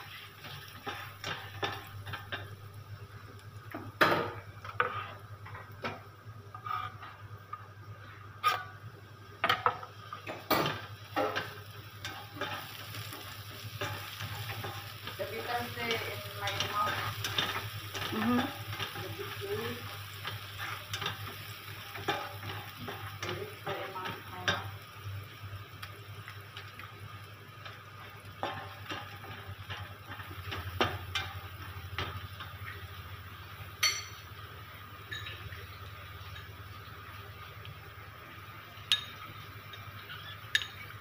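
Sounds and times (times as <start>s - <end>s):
spatula scraping frying pan: 0.0s - 2.4s, 4.6s - 5.3s, 6.5s - 7.3s, 8.4s - 8.8s, 11.2s - 24.6s
food sizzling in oil: 0.0s - 41.0s.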